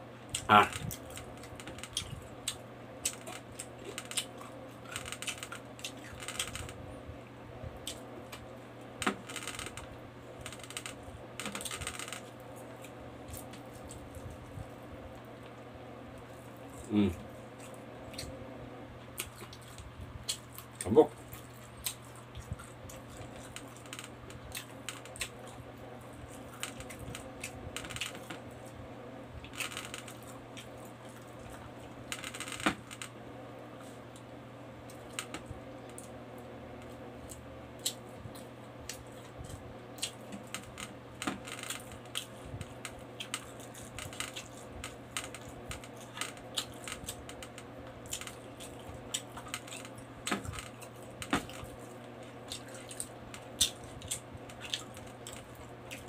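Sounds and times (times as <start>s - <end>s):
person chewing with mouth clicks: 48.0s - 56.0s.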